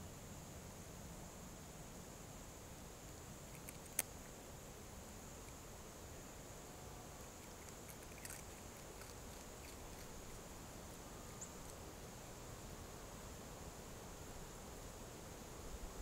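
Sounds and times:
faint steady hiss: 0:00.0 - 0:16.0
fox crunching corn: 0:03.5 - 0:04.2, 0:07.2 - 0:11.9.

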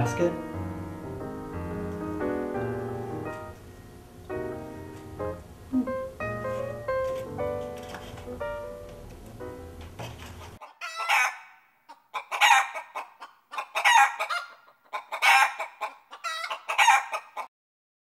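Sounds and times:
piano music: 0:00.0 - 0:10.6
chicken calling: 0:10.4 - 0:17.5.

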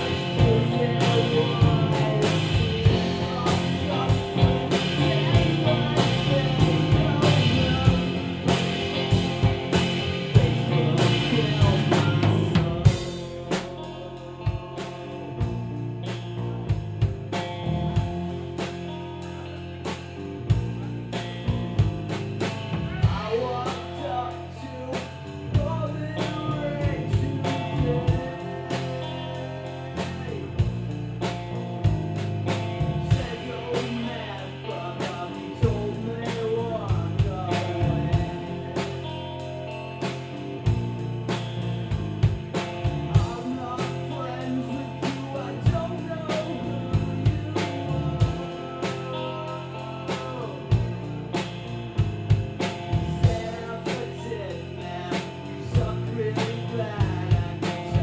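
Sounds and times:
drum and cymbal hits: 0:00.0 - 0:24.0
bass line: 0:00.0 - 0:58.0
electric guitar: 0:00.0 - 0:58.0.

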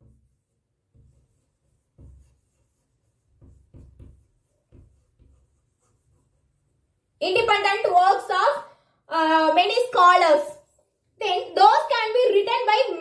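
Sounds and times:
chalk scratching on blackboard: 0:00.0 - 0:07.5.

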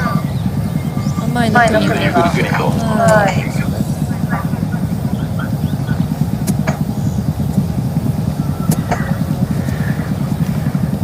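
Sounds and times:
wind buffeting microphone: 0:00.0 - 0:11.0
faint clicks: 0:08.7 - 0:10.6.

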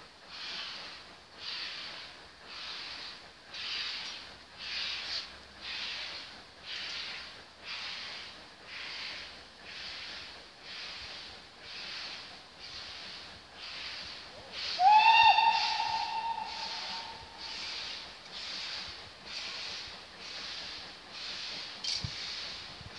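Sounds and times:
steam locomotive chuffing: 0:00.0 - 0:22.9
steam locomotive whistle: 0:14.6 - 0:17.8.

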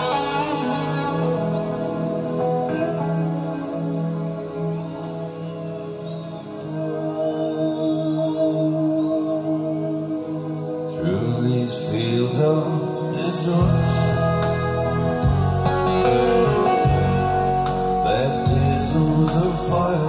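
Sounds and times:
song with singing voice: 0:00.0 - 0:20.0
deep bass line: 0:13.6 - 0:20.0.

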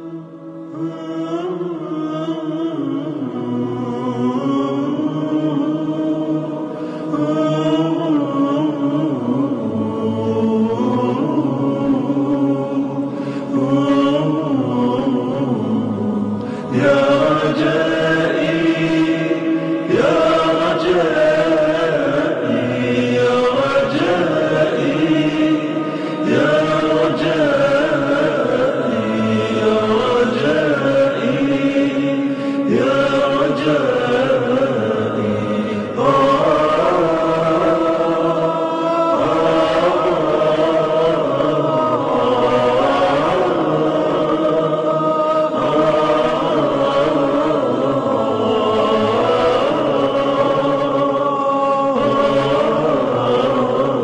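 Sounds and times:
layered voices chanting: 0:00.0 - 0:54.0.

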